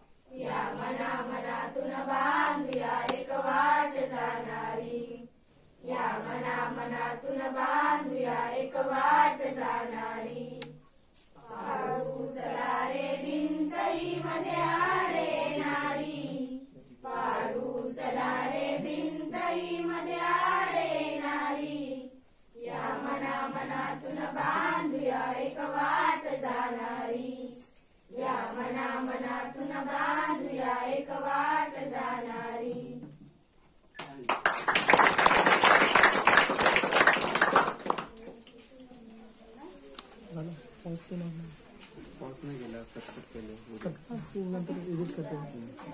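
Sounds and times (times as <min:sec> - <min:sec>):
children singing unaccompanied: 0:00.3 - 0:10.8, 0:11.4 - 0:27.5, 0:28.1 - 0:33.2.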